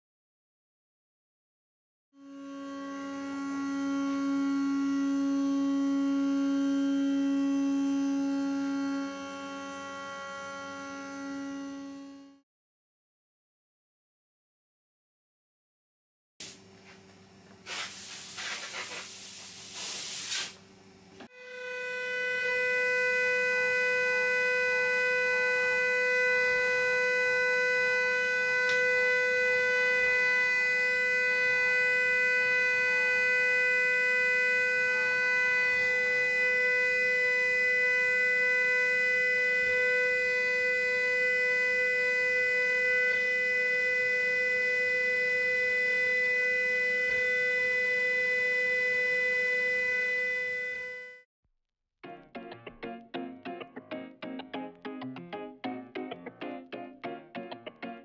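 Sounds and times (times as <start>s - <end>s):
router spindle whining while cutting plastic: 2.2s - 12.4s, 21.3s - 51.2s.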